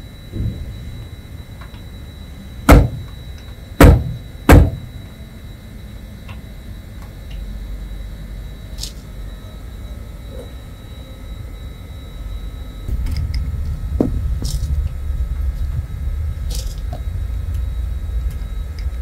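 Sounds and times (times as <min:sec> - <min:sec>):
loud knocks on hard surface: 0:02.7 - 0:03.0, 0:03.8 - 0:04.8
low rumble: 0:12.3 - 0:19.0.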